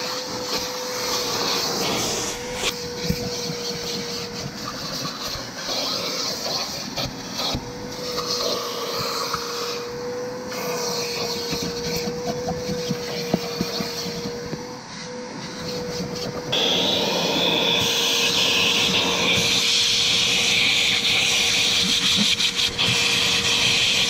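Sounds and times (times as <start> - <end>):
hiss: 0.0 - 7.6
electric motor whining: 0.2 - 4.7.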